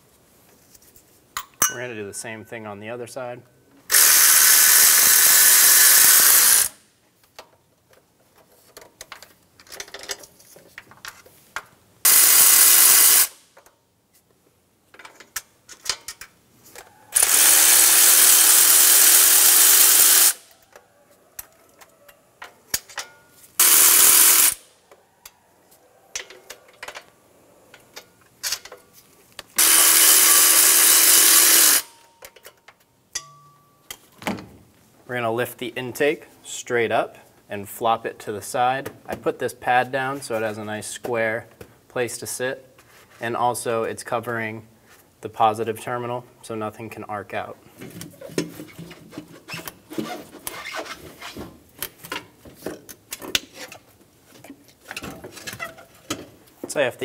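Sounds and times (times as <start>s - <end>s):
cordless electric ratchet running: 3.9s - 6.8s, 12.1s - 13.3s, 17.2s - 20.4s, 23.6s - 24.6s, 29.6s - 31.9s.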